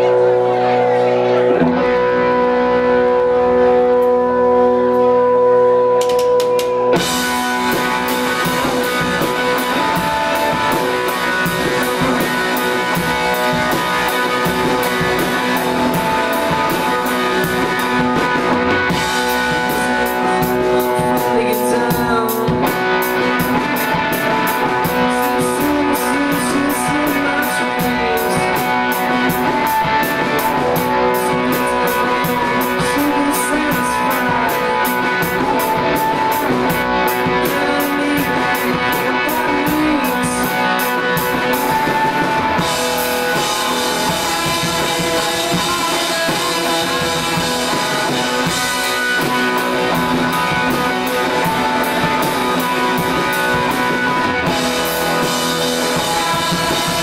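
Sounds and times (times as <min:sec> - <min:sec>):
electric guitar: 0:00.0 - 0:57.0
drums and cymbals: 0:06.0 - 0:57.0.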